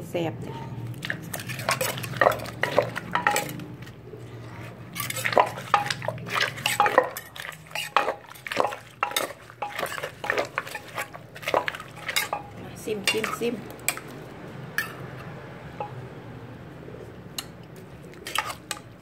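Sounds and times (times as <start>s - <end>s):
pestle pounding in a mortar: 1.0s - 3.6s, 5.0s - 13.4s
metal spoon knocking mortar: 1.4s - 3.7s, 5.0s - 14.1s.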